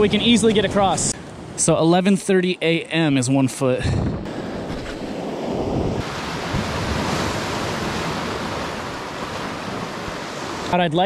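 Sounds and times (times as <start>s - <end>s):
ocean surf washing over rocks: 5.2s - 11.0s.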